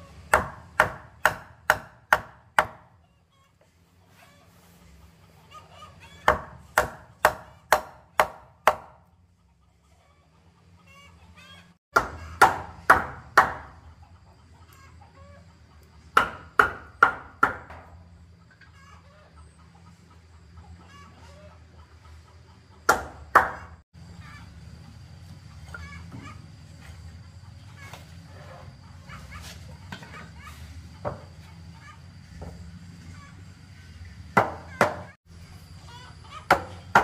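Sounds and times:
mallet striking chisel into wood: 0.3s - 2.8s, 6.3s - 8.9s.

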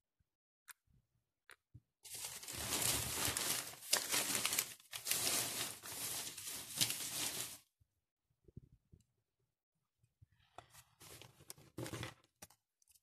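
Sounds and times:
rustling and crinkling: 2.0s - 7.7s.

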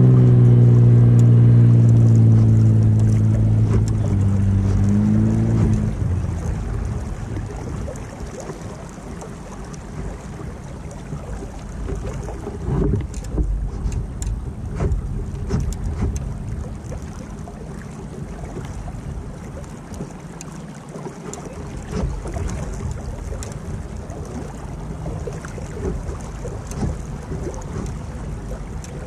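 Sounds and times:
wind on microphone: 0.0s - 20.0s
boat engine humming: 0.0s - 29.0s
water noise: 0.0s - 29.0s.

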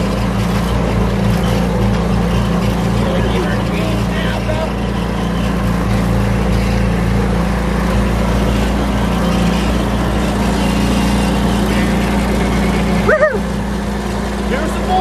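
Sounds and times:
golf cart engine humming: 0.0s - 15.0s.

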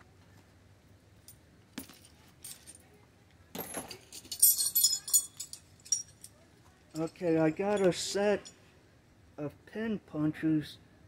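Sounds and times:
steel hand tools clinking: 3.7s - 6.3s.

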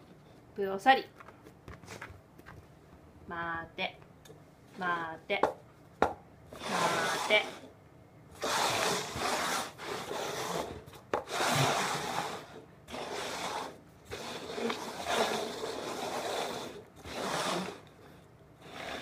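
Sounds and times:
paper cups scraping on mat: 6.5s - 7.7s, 8.4s - 19.0s.

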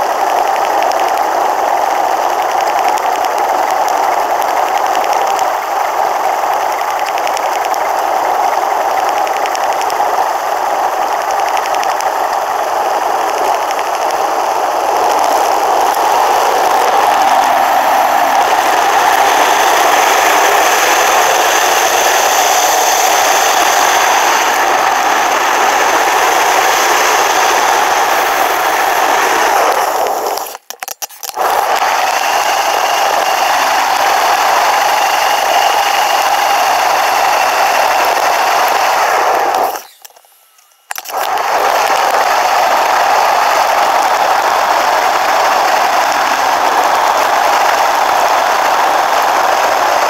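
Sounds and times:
wind and road rushing noise: 11.6s - 30.5s.

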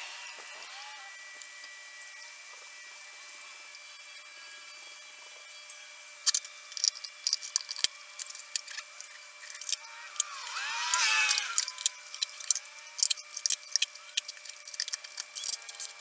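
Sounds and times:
metallic clicks of hand tools: 6.2s - 16.0s.

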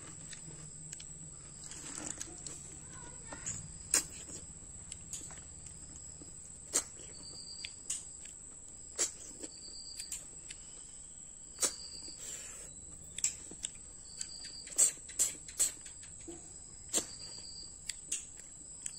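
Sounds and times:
snails sucked from shells: 11.6s - 12.8s, 14.7s - 15.9s.

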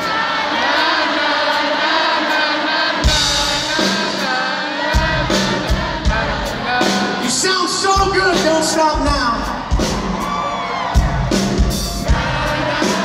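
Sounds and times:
heavy drum beats: 0.0s - 13.0s
live rock band playing: 0.0s - 13.0s
male lead singer: 3.0s - 9.9s.

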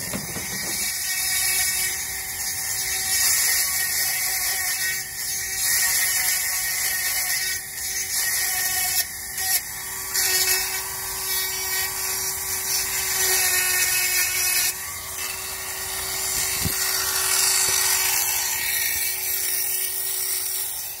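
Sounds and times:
chainsaw sharpener grinding whine: 0.0s - 21.0s.

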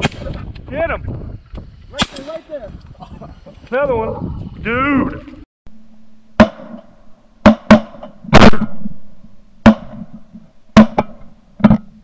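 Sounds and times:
shotgun blasts: 2.0s - 2.3s, 6.4s - 8.9s, 9.6s - 10.1s.

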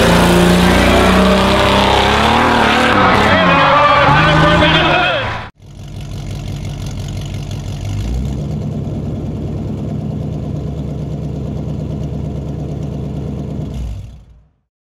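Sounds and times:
engine idling: 4.2s - 14.6s.

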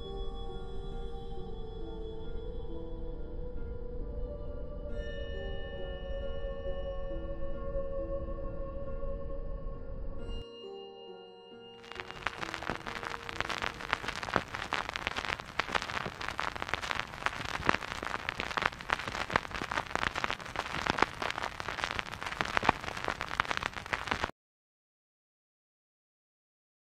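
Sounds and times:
vinyl record crackle: 11.8s - 24.3s.

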